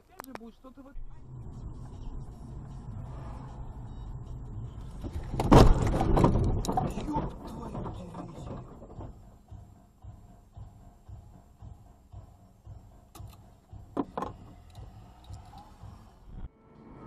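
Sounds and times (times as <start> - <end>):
cabin road noise: 0.0 - 17.0
rattling and crunching: 4.7 - 9.8
car crash impact: 5.0 - 9.2.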